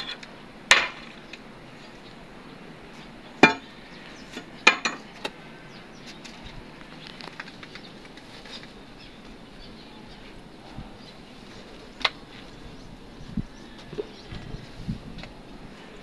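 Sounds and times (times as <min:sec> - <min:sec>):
iron bar striking concrete: 0:00.0 - 0:01.2, 0:03.4 - 0:03.7, 0:04.6 - 0:05.1.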